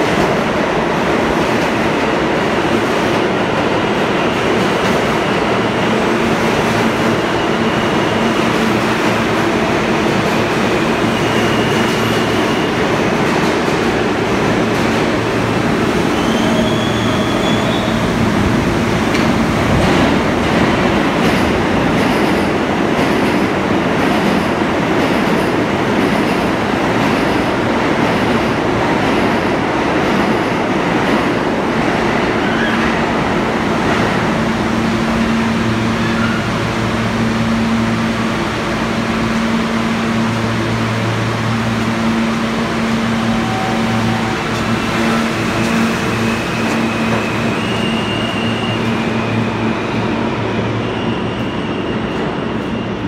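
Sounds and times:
subway train rumbling: 0:00.0 - 0:53.0
train low hum: 0:00.0 - 0:53.0
wheel and brake squeals: 0:16.0 - 0:18.1, 0:45.0 - 0:49.7.

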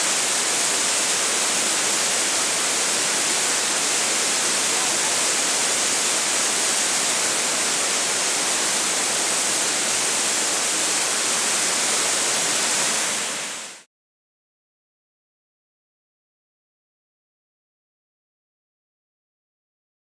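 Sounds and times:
whitewater rushing over rock: 0:00.0 - 0:13.8.

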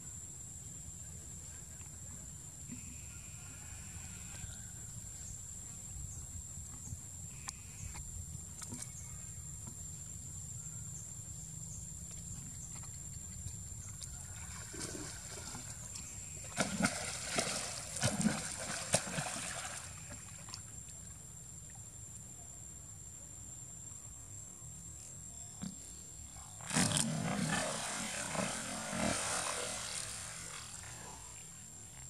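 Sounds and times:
water splashing: 0:14.2 - 0:20.7, 0:26.6 - 0:31.2
low outdoor rumble: 0:26.3 - 0:32.0.

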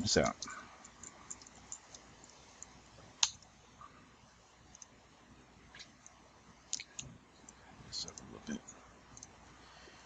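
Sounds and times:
keyboard and mouse clicks: 0:00.2 - 0:03.5, 0:04.7 - 0:05.0, 0:09.1 - 0:09.4.

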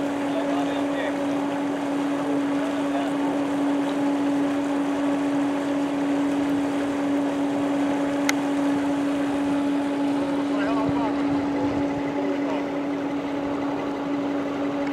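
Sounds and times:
pump hum: 0:00.0 - 0:14.9
water gushing from pipe into pond: 0:00.0 - 0:14.9.

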